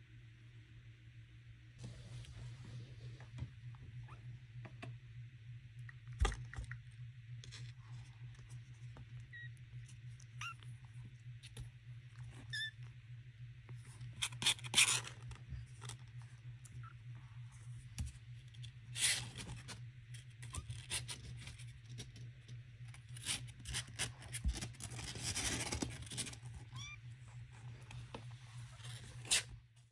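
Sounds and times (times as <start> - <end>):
steady low hum: 0.0 - 29.9
kittens rustling in cardboard box: 23.0 - 29.6.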